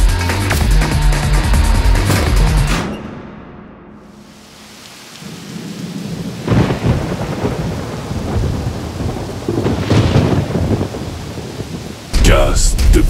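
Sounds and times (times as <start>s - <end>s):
rain falling: 4.0s - 13.0s
thunder clap: 5.6s - 13.0s.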